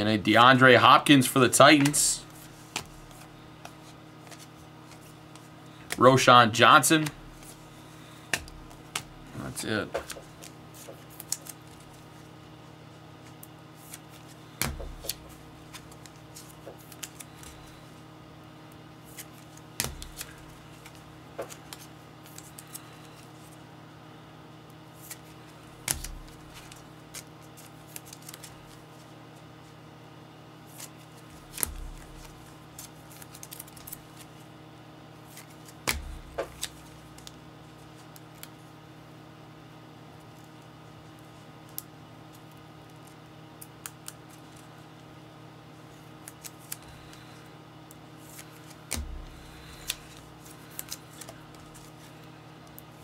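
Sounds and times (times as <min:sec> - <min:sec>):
steady low hum: 0:00.0 - 0:53.0
card packs clicking and crinkling: 0:01.6 - 0:12.1, 0:13.3 - 0:17.9, 0:19.0 - 0:23.3, 0:25.0 - 0:28.8, 0:30.7 - 0:34.4, 0:35.3 - 0:38.6, 0:48.2 - 0:52.8
dull thumps: 0:14.6 - 0:15.4, 0:35.8 - 0:36.7, 0:48.9 - 0:50.3.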